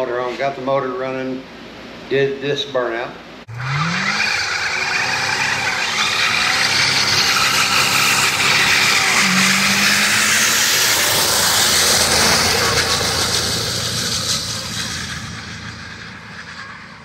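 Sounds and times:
engine revving hard: 3.5 - 17.0.

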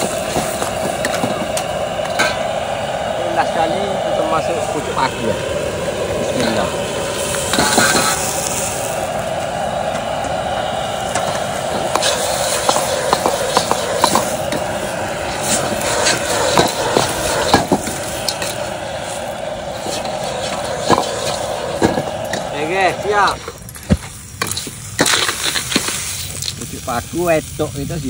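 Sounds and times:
gas burner hissing: 0.0 - 28.0
utensils scraping a wok: 6.3 - 9.0, 11.1 - 23.7, 24.4 - 26.7.

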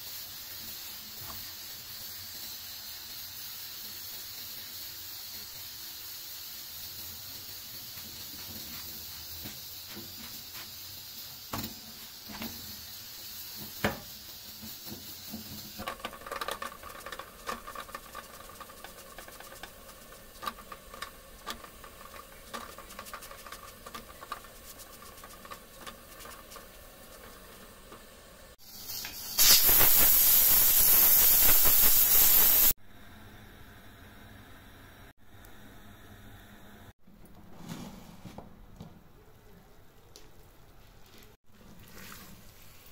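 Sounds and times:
loud hiss: 0.0 - 15.9, 28.4 - 32.8
bread hissing on hot pan: 0.0 - 32.8.

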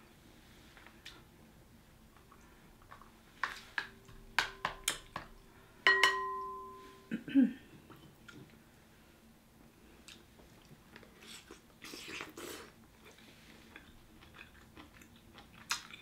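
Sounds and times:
ringing strike on glass: 5.9 - 7.1
glass bowl clinking: 5.9 - 7.2.

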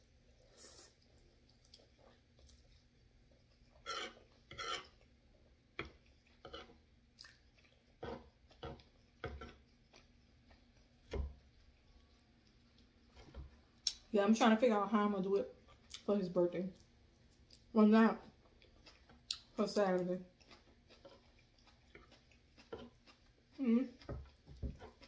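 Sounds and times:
chewing and mouth smacks: 0.9 - 4.4, 5.9 - 14.1, 15.6 - 16.1, 16.7 - 17.7, 18.4 - 19.6, 20.2 - 25.0.

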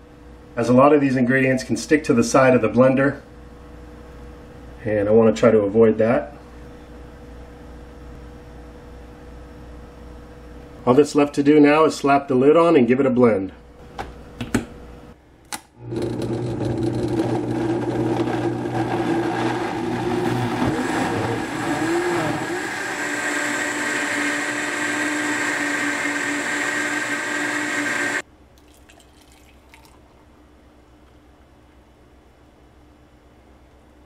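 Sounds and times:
blender motor running: 15.8 - 28.2.

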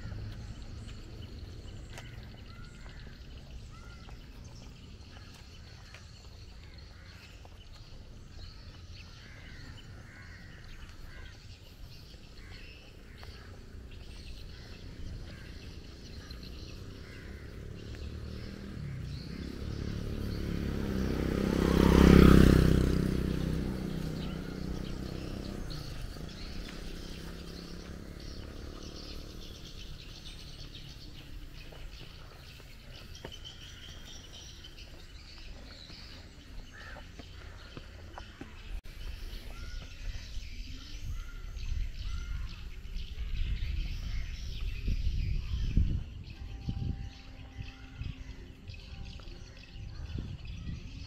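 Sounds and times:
birds chirping: 0.0 - 51.0
vehicle engine passing by: 11.8 - 51.0.

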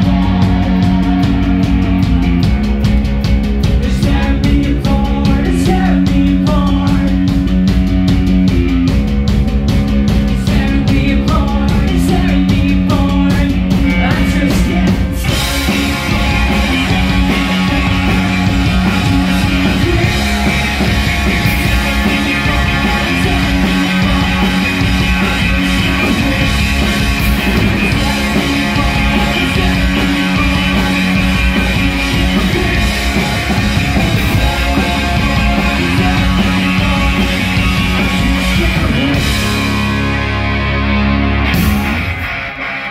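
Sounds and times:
bass guitar: 0.0 - 42.9
drum kit: 0.0 - 42.9
electric guitar: 0.0 - 42.9
person singing: 10.4 - 39.6.

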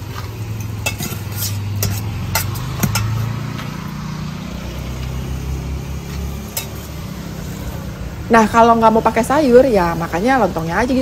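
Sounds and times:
metal ladle clinking against pot: 0.5 - 3.3.

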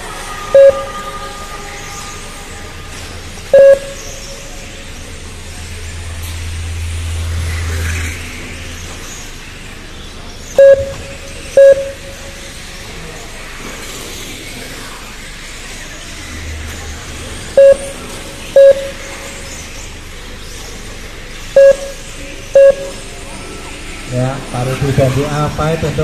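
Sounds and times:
trackside background noise: 0.0 - 26.0
electronic beeps: 0.5 - 1.1, 3.5 - 4.6, 10.6 - 12.7, 17.6 - 19.7, 21.6 - 23.1
low hum: 10.2 - 13.1.

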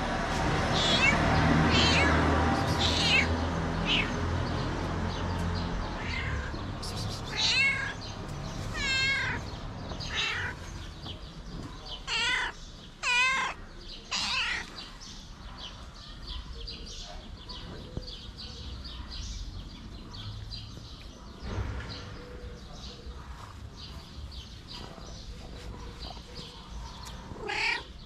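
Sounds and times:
cat meowing: 0.7 - 4.2, 5.9 - 6.6, 7.2 - 8.0, 8.7 - 10.7, 12.0 - 14.8, 27.3 - 28.0.

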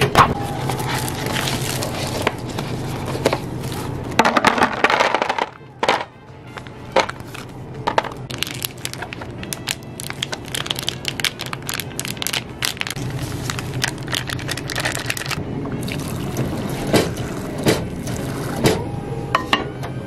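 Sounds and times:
plastic pouches crinkling: 0.5 - 17.4
food pouring into paper cup: 8.3 - 18.6.

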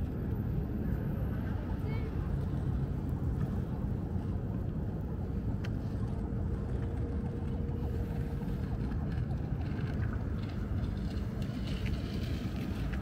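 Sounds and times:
faint steady hum: 0.0 - 13.0
low outdoor rumble: 0.0 - 13.0.

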